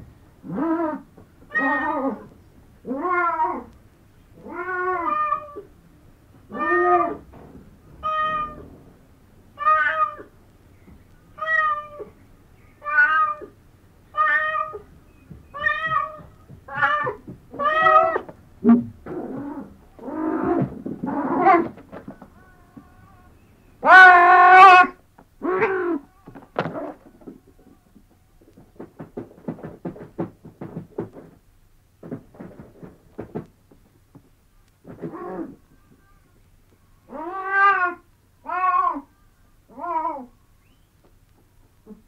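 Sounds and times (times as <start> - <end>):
cat meowing: 6.5 - 7.2, 8.0 - 8.7, 9.6 - 10.3, 11.4 - 12.1, 15.6 - 18.3, 37.1 - 39.1.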